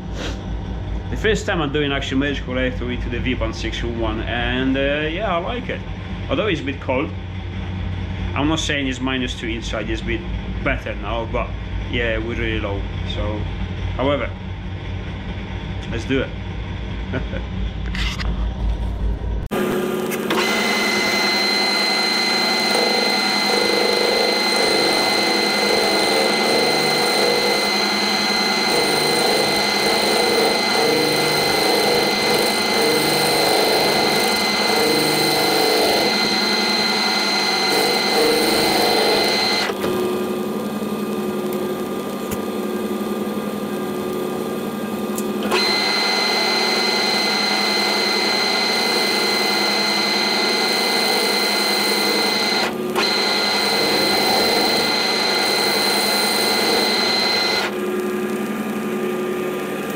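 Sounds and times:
metal lathe whine: 19.5s - 59.2s.

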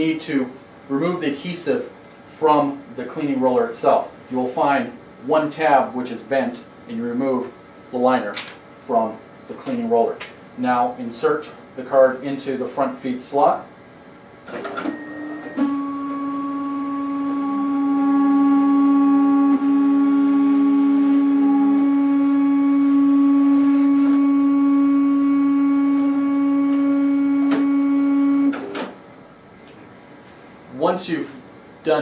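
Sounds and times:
printer motor whine: 14.5s - 29.0s.

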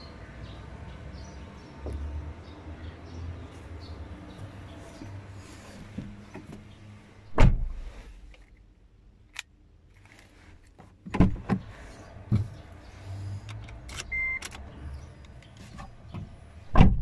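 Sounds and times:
thump: 7.4s - 7.8s, 16.7s - 17.0s.

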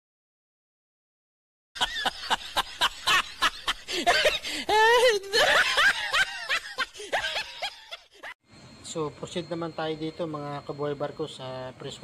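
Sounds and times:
cackling laugh: 1.8s - 8.4s
high wavering laugh: 1.8s - 8.4s.

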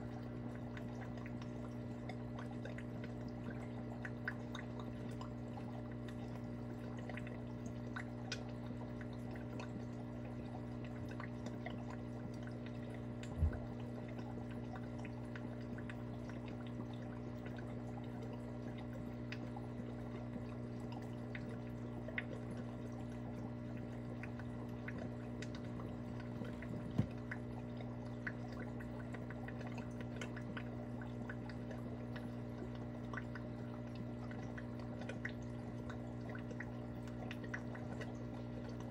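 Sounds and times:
aquarium filter hum: 0.0s - 38.9s
small drips and ticks: 0.0s - 38.9s
water trickle: 0.0s - 38.9s
soft thump: 13.4s - 13.7s, 26.8s - 27.2s.

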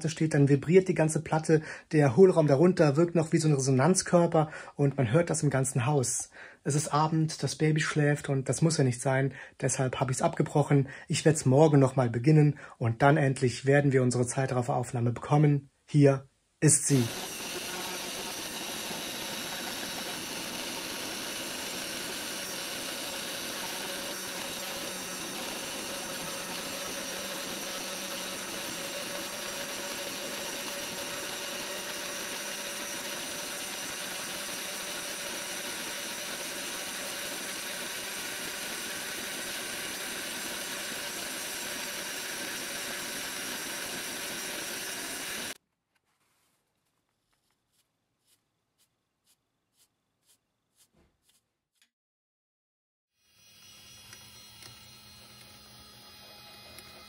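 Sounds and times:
spindle motor whirring: 16.9s - 45.6s, 53.2s - 57.0s.

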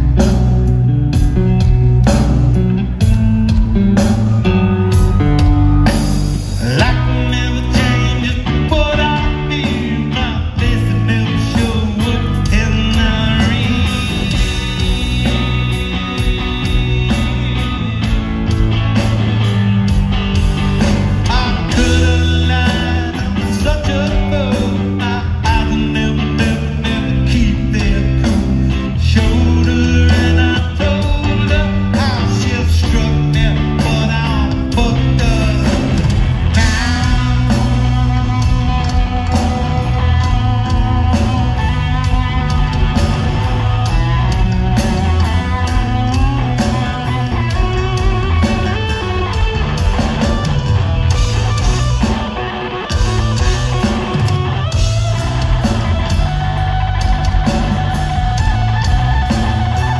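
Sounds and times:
live rock band playing: 0.0s - 59.9s.

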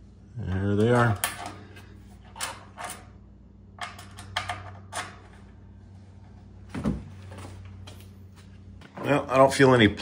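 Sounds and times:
steady low hum: 0.0s - 10.0s
metallic clicks and scrapes of bolt: 2.2s - 3.1s.

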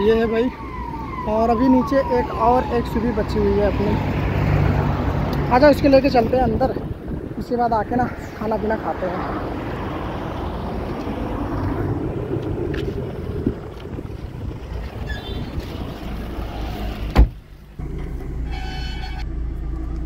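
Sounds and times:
car engine rumbling: 0.0s - 20.0s
car door shutting with thud: 17.0s - 17.4s.

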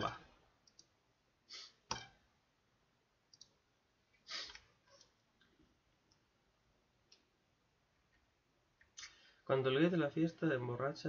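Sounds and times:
faint computer mouse clicks: 3.3s - 3.6s.

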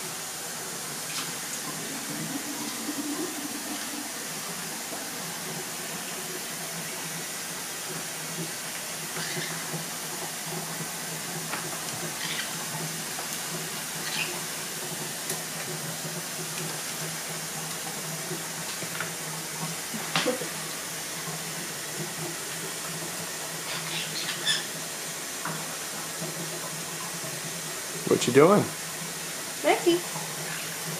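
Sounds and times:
low hum and hiss: 0.0s - 15.8s.

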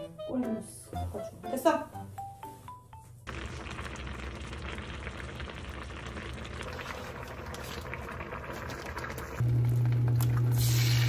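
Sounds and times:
food sizzling and bubbling: 3.3s - 11.0s.

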